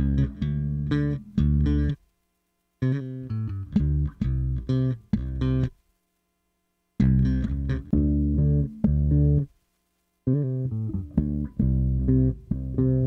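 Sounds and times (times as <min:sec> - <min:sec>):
electric bass playing sustained notes: 0:00.0 - 0:02.0, 0:02.8 - 0:05.7, 0:07.0 - 0:09.5, 0:10.3 - 0:13.0.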